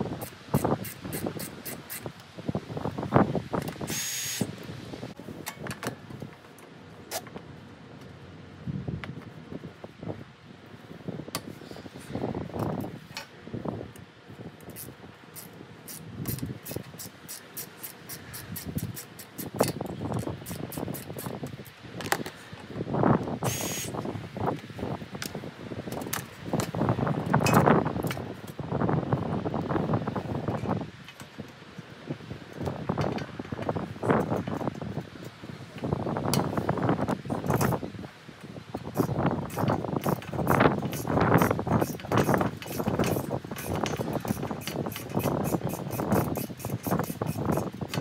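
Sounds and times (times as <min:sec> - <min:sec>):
wind buffeting microphone: 0:00.0 - 0:06.4, 0:08.5 - 0:48.0
ratchet wrench clicking: 0:00.2 - 0:02.1, 0:14.7 - 0:21.4, 0:39.0 - 0:48.0.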